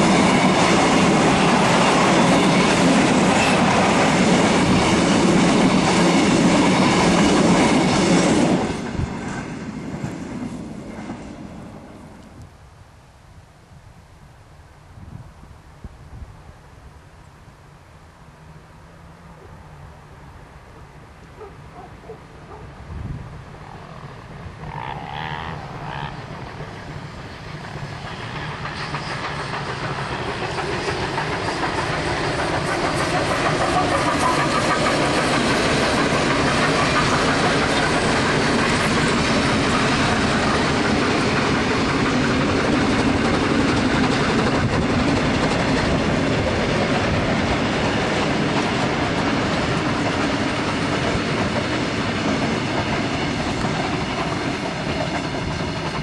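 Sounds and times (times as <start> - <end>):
train rumble and wheel clatter: 0.0 - 12.5, 19.7 - 56.0
distant train whistle: 23.7 - 26.4.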